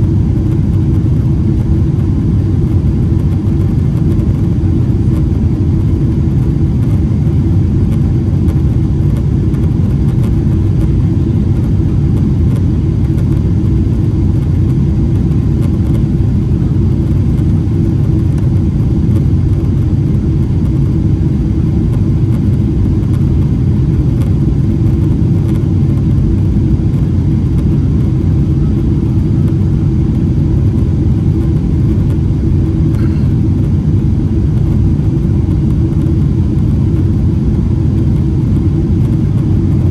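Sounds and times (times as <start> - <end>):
jet engines loud low rumble: 0.0 - 39.9.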